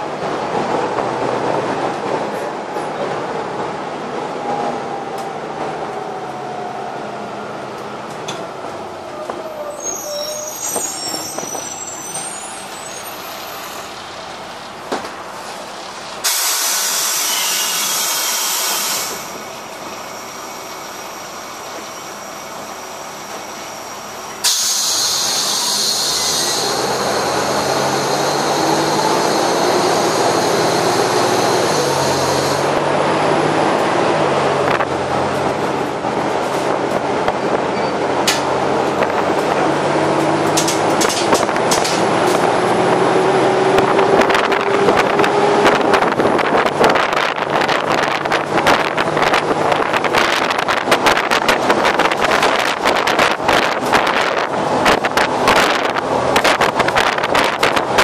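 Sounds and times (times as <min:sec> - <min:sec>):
bus engine and road noise: 0:00.0 - 0:58.0
pneumatic air hiss: 0:16.2 - 0:19.4, 0:24.4 - 0:26.7.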